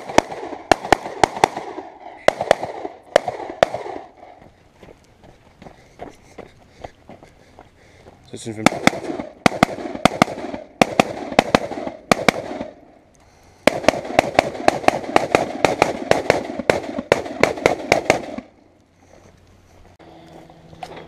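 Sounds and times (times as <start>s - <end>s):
rifle firing rapidly: 0.0s - 4.2s, 8.6s - 12.8s, 13.7s - 18.5s.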